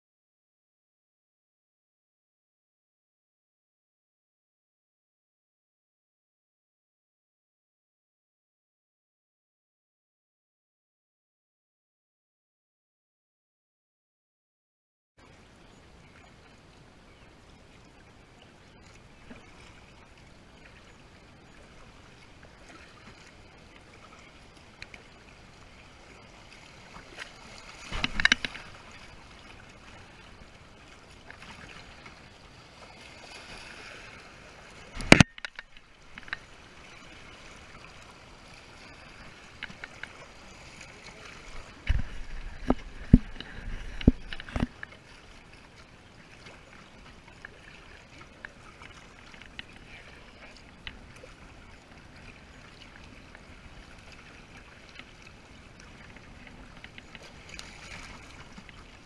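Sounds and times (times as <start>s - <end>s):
moving water: 15.2s - 59.0s
paddle splashing in water: 21.6s - 59.0s.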